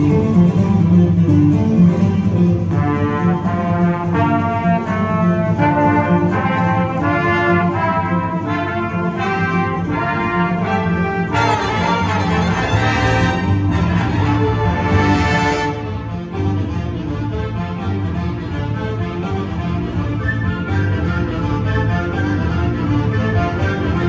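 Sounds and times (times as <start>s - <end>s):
marching band brass chords: 2.4s - 24.0s
steady low bass: 9.6s - 24.0s.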